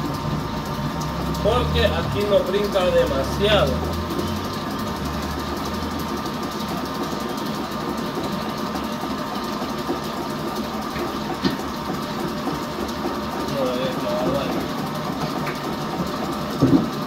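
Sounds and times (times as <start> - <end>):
mixer vibrating on table: 0.0 - 17.0
stand mixer running: 0.0 - 17.0.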